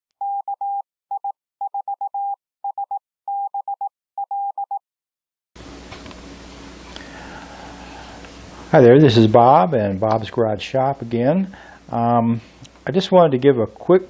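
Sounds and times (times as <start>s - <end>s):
morse code beeps: 0.2s - 4.8s.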